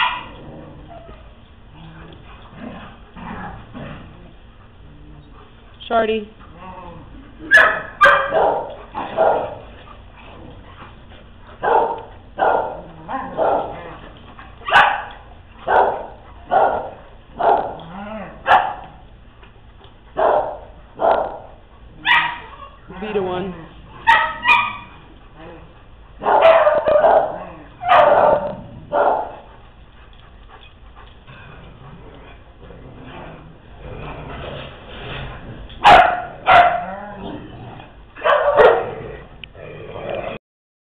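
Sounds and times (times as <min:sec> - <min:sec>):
dog barking: 0:00.0 - 0:00.3, 0:07.5 - 0:09.6, 0:11.6 - 0:13.8, 0:14.7 - 0:17.8, 0:18.4 - 0:18.9, 0:20.2 - 0:22.5, 0:24.0 - 0:24.9, 0:26.2 - 0:29.4, 0:35.8 - 0:37.0, 0:38.2 - 0:39.0.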